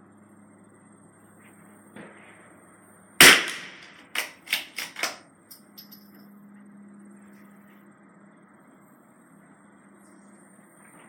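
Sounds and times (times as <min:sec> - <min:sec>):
rifle shot echo: 0:03.2 - 0:04.2
rifle action metallic clacks: 0:03.2 - 0:06.0.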